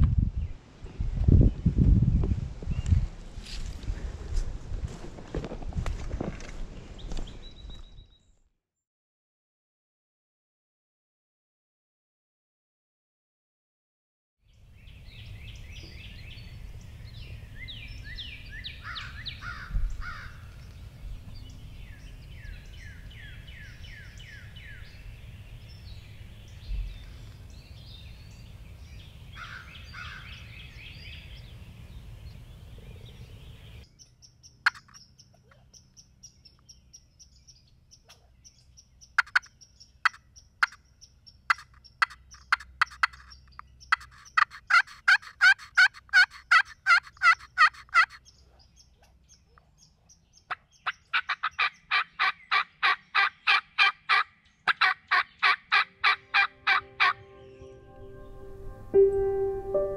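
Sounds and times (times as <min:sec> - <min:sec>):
small birds chirping: 0:14.4 - 0:58.4
wild turkey yelping: 0:39.2 - 0:40.8, 0:43.9 - 0:48.2, 0:50.5 - 0:57.2.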